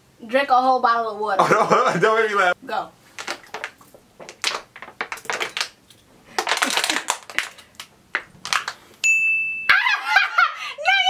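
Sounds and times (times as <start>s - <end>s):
plastic water bottle crinkling: 3.1s - 8.9s.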